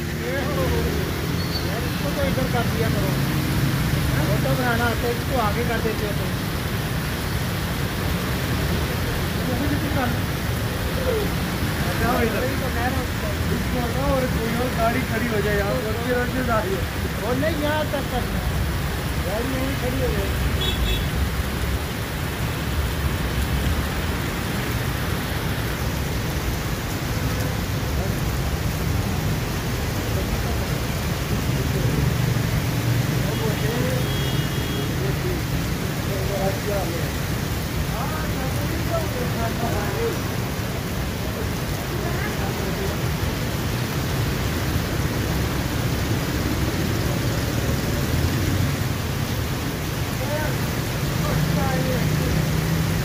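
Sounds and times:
heavy rain pouring on street: 0.0 - 53.0
traffic driving through water: 0.0 - 53.0.

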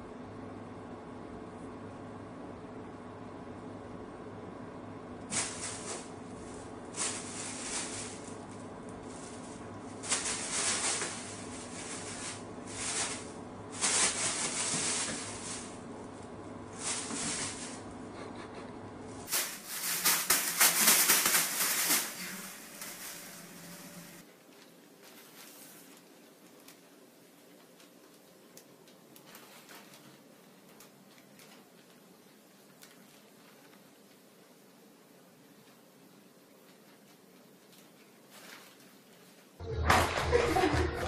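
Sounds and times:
steady low hum: 0.0 - 38.2
plastic bag crinkling: 5.3 - 17.9, 19.2 - 34.2.

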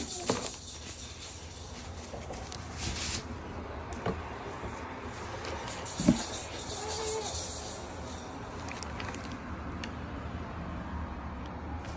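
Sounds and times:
foam packing sheet rustling: 0.0 - 3.5.

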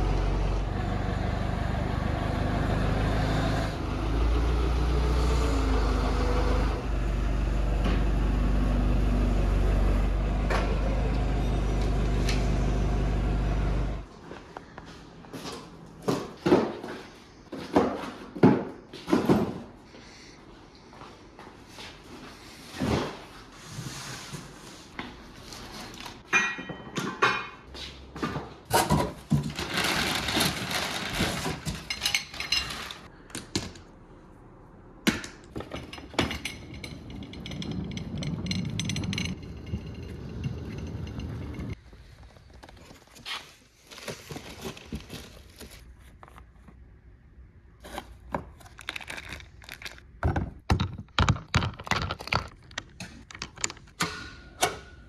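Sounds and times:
cart rolling rumble: 29.3 - 33.1, 35.6 - 42.4
engine parts knocking and rattling: 35.1 - 42.7, 49.0 - 54.0.

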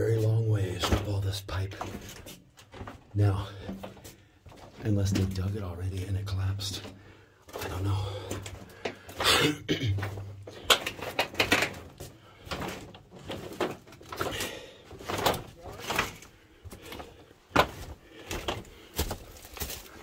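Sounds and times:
pipes knocking and clattering: 0.0 - 19.2
footsteps on loose plastic pipes: 0.0 - 20.0.

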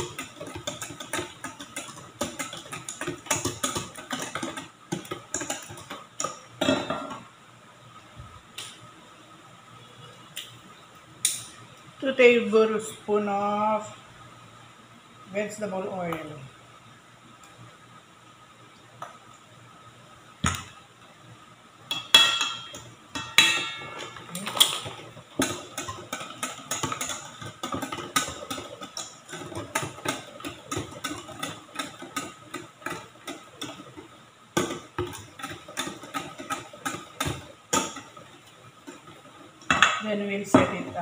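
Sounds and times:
whisk clattering in metal bowl: 0.0 - 6.4.

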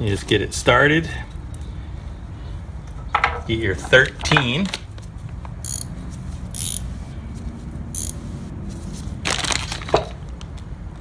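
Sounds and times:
plastic bag rustling: 8.7 - 10.2.

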